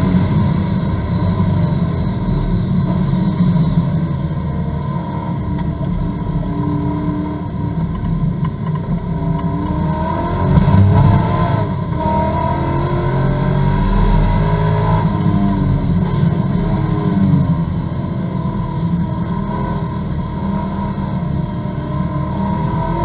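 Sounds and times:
race car engine accelerating: 4.8 - 17.8.

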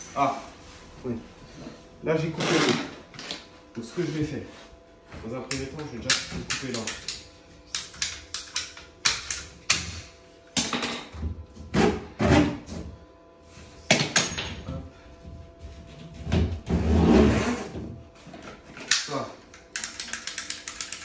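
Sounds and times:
pipe cutter clicks and snaps: 5.5 - 9.8, 18.9 - 21.0.

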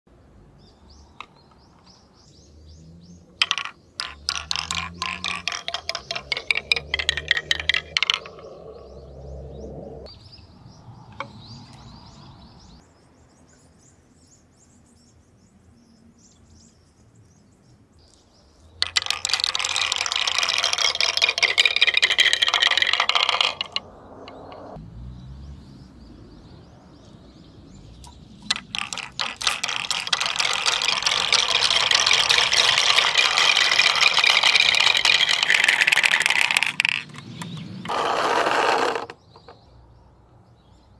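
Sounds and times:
marbles clattering on wooden run: 3.4 - 9.3, 18.8 - 24.8, 28.4 - 39.6.

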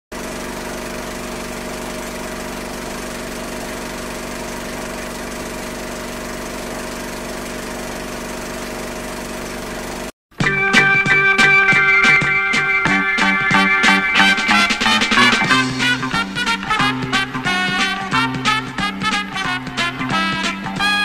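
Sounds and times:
machine hum: 0.2 - 10.1, 10.8 - 20.5.

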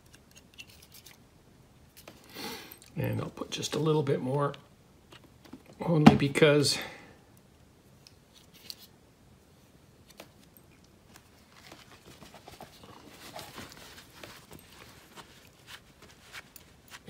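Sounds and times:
cloth rustling on saw blade: 11.3 - 17.0.

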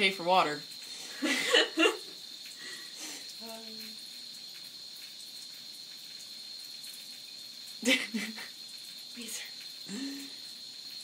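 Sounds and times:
water trickling from bathtub tap: 0.0 - 11.0.

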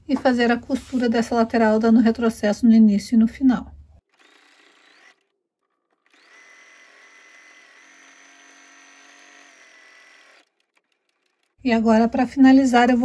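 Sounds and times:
faint sewing machine stitching: 4.0 - 11.6.

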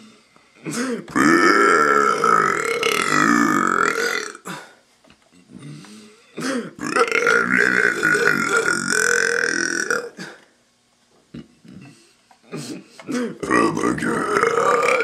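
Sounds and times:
man burping: 0.7 - 4.7, 6.4 - 10.5, 11.3 - 15.0.

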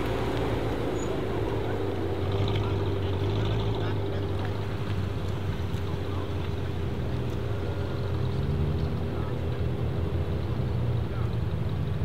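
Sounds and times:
car engine rumbling at low revs: 0.0 - 12.0.

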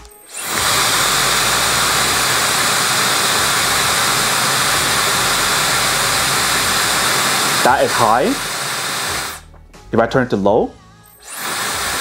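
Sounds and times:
hair dryer air rush: 0.3 - 9.4, 11.2 - 12.0.

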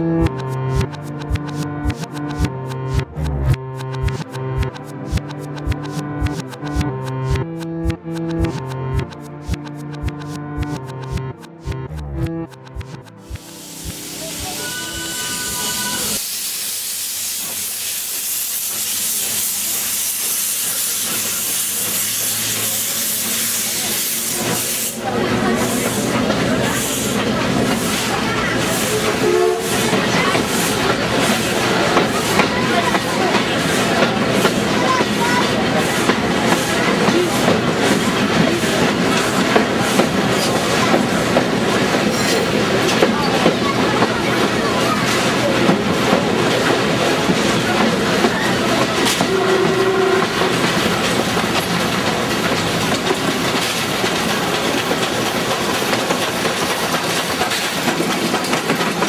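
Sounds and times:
steady high tones: 11.6 - 16.2
steam locomotive hissing steam: 13.4 - 59.0.

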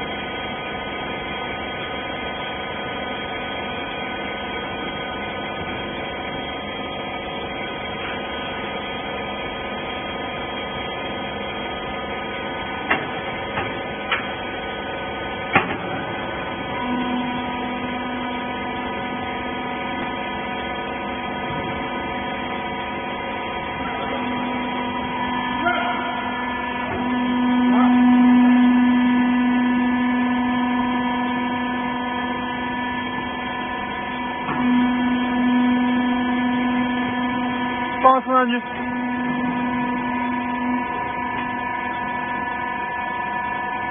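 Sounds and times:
hydraulic motor and pump hum: 0.0 - 43.9.

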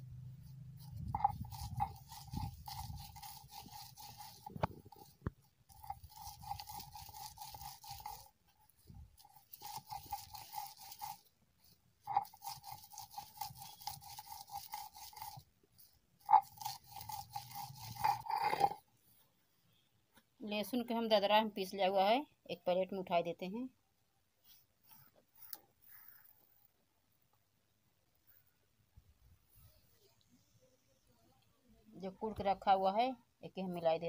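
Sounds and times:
stone roller grinding on stone slab: 0.8 - 11.3, 12.0 - 15.4, 16.2 - 18.8.

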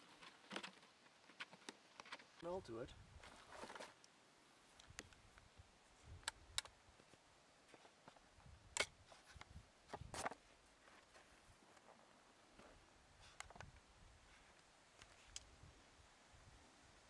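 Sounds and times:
faint clicks and taps of rifle: 4.0 - 5.5, 6.2 - 8.2.

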